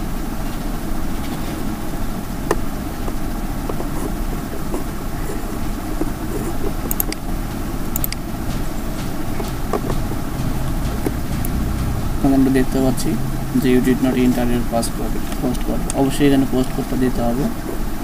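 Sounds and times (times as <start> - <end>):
low rumbling background noise: 0.0 - 18.0.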